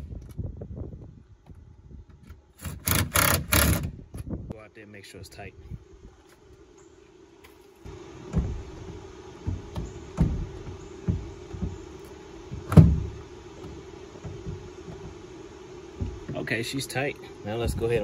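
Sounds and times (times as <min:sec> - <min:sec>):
dull knocks and clunks: 0:08.2 - 0:15.2, 0:15.9 - 0:16.4.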